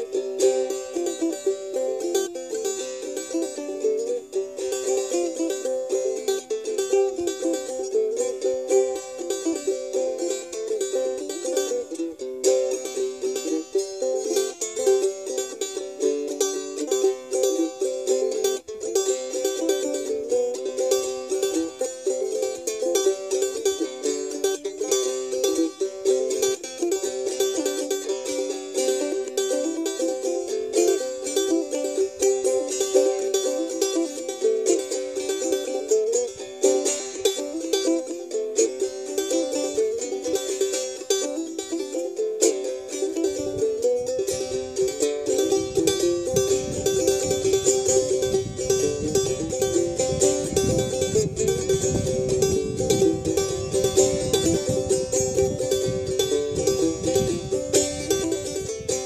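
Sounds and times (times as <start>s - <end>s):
banjo picking: 0.0s - 59.0s.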